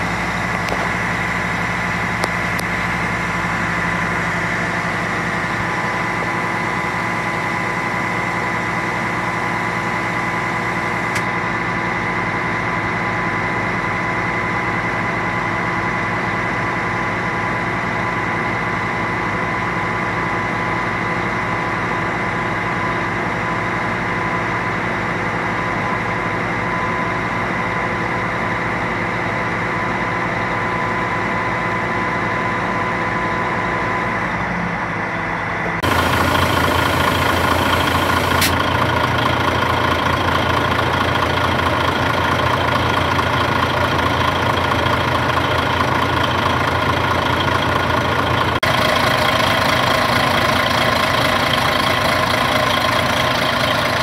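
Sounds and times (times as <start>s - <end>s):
diesel engine running: 0.0s - 54.0s
hydraulic high whine: 0.0s - 54.0s
sharp click: 38.4s - 38.6s.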